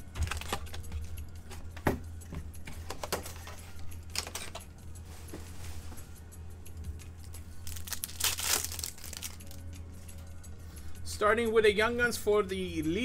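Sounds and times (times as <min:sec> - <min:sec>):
steady low hum: 0:00.0 - 0:13.0
card rustles: 0:07.3 - 0:09.6.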